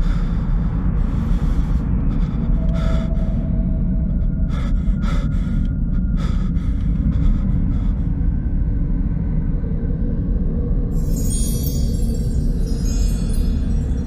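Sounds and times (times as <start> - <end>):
deep rumbling drone: 0.0 - 14.0
shimmer of high chime-like tones: 10.9 - 14.0.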